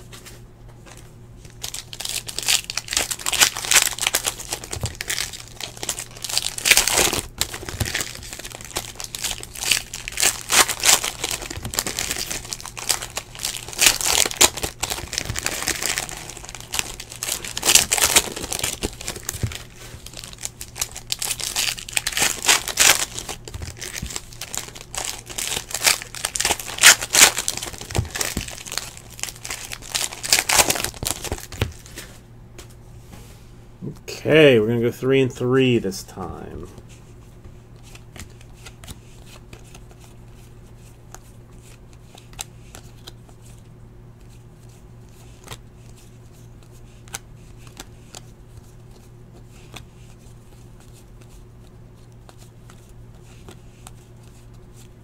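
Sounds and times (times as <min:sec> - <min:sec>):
card pack wrappers tearing: 0:01.6 - 0:32.0.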